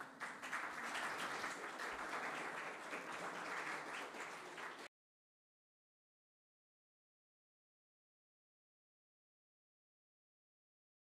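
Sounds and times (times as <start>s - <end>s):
audience applauding: 0.0s - 4.9s.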